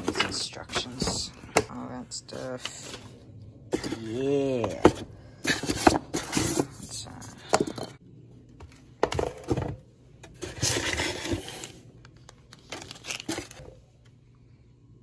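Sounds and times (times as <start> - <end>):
plastic bag rustling: 12.6 - 13.8.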